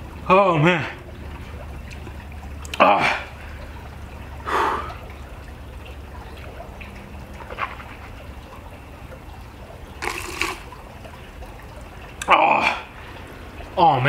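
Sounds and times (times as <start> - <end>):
low steady hum: 0.0 - 14.0
man breathing out hard: 4.5 - 5.0.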